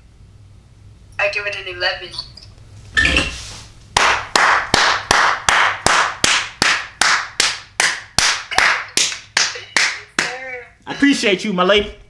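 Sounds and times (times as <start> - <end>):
man clapping hands: 4.0 - 10.4.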